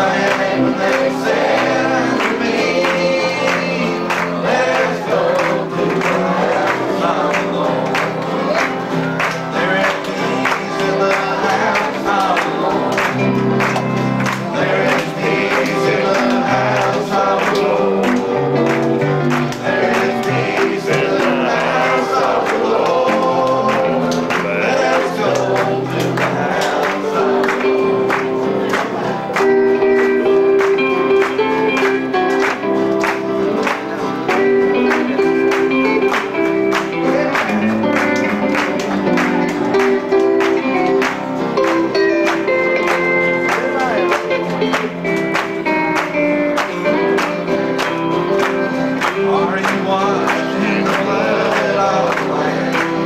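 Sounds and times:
person singing into microphone: 0:00.0 - 0:13.6, 0:14.4 - 0:31.7, 0:48.7 - 0:53.0
strummed guitar: 0:00.0 - 0:53.0.

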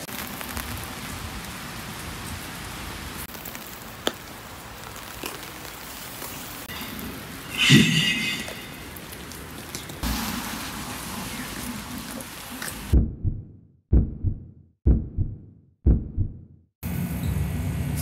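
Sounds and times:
rain on an umbrella: 0:00.0 - 0:07.5, 0:08.6 - 0:13.0.

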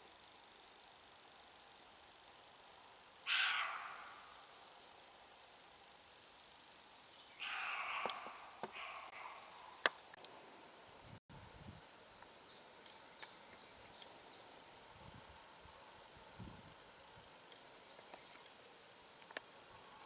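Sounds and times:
deer barking: 0:03.3 - 0:04.2, 0:07.4 - 0:09.8
small bird chirping: 0:11.7 - 0:14.8.

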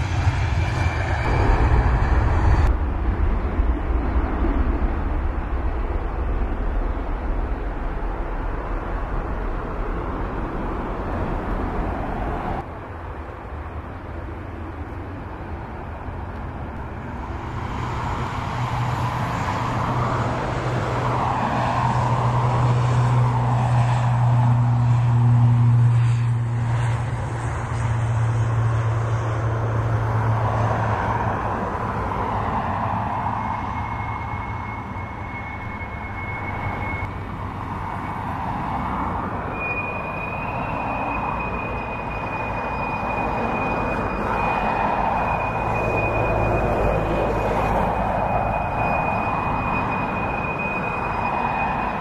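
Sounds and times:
high engine whine: 0:00.0 - 0:52.0
jet engines idling: 0:00.0 - 0:52.0.

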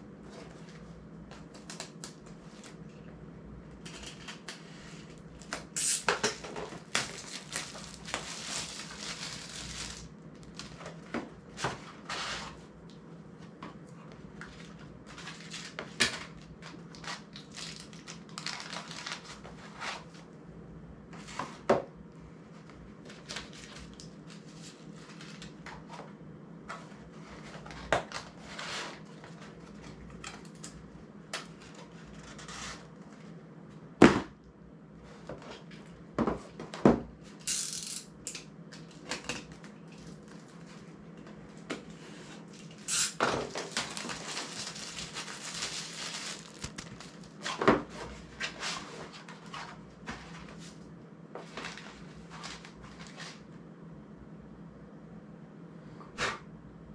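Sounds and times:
packaging rustling: 0:06.3 - 0:11.1, 0:14.5 - 0:20.1, 0:41.8 - 0:49.8.

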